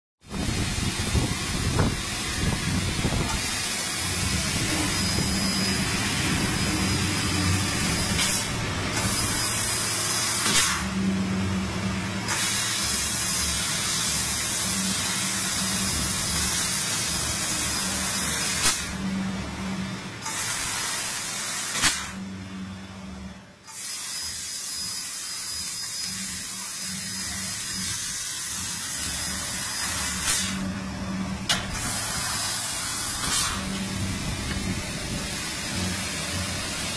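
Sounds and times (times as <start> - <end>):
low machine hum: 0.3 - 20.8, 22.0 - 23.7, 26.1 - 36.9
laser cutting head hissing: 2.6 - 10.9, 23.7 - 30.6, 31.7 - 36.9.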